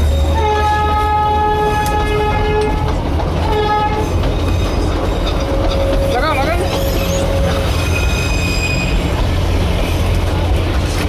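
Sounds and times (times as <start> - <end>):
train horn blasts: 0.0 - 4.2
running train rumble: 0.0 - 11.0.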